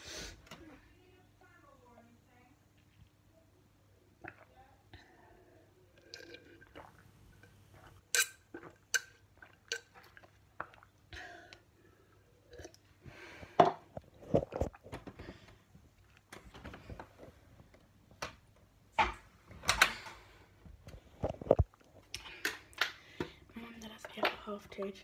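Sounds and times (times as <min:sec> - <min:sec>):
person gulping and swallowing: 0:04.1 - 0:05.1, 0:05.9 - 0:12.9, 0:13.6 - 0:16.2, 0:20.9 - 0:22.8.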